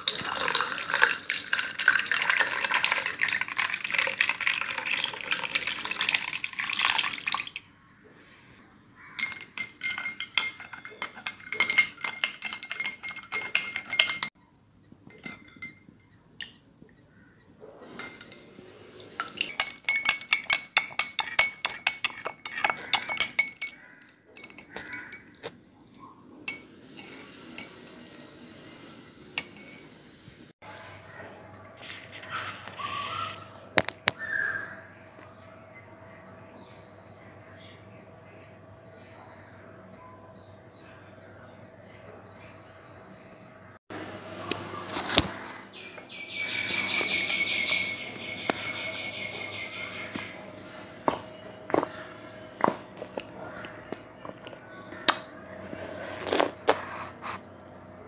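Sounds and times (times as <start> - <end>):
milk pouring over ice: 0.0 - 7.6
spoon clinking in glass: 9.2 - 14.4, 15.1 - 16.6, 18.0 - 18.5, 19.2 - 25.4, 26.4 - 27.9, 29.4 - 29.9.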